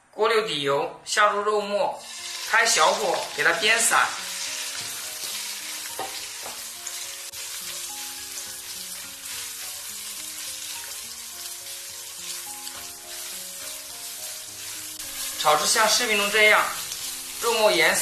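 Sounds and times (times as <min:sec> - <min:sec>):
meat sizzling in a wok: 0:02.0 - 0:18.0
spatula pushing food: 0:04.2 - 0:18.0.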